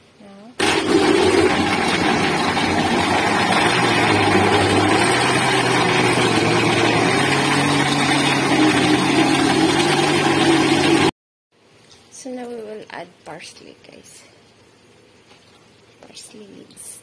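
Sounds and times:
blender motor whirring: 0.6s - 11.1s.

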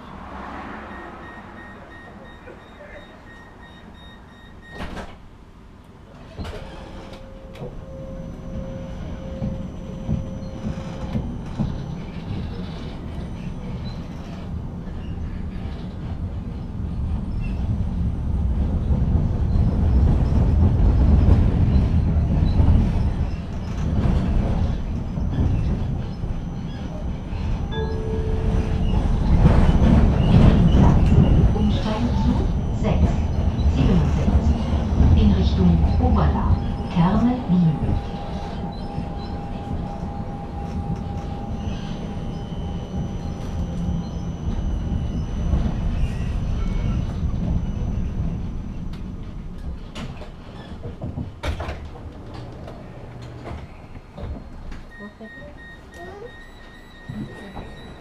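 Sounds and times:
tram wheels rumbling on rails: 0.0s - 58.0s
steady door beep: 0.9s - 5.1s, 54.4s - 58.0s.

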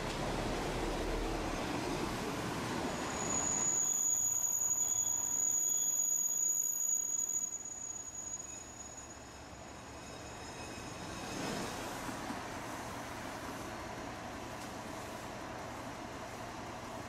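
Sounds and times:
train rumble: 0.0s - 3.2s
high-pitched wheel squeal: 2.9s - 11.4s.

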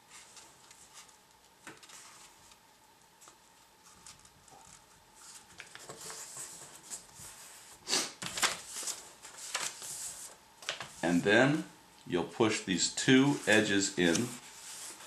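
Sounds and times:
paper rustling and sliding: 0.0s - 2.6s, 3.2s - 11.0s, 13.1s - 15.0s
paper crackles: 3.2s - 7.5s, 8.2s - 11.0s, 13.4s - 15.0s.

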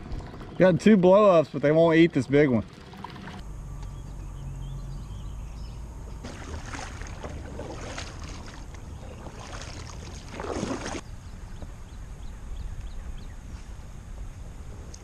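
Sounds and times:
steady low rumble: 0.0s - 15.0s
kayak paddle splashing water: 2.6s - 3.4s, 6.2s - 11.0s.

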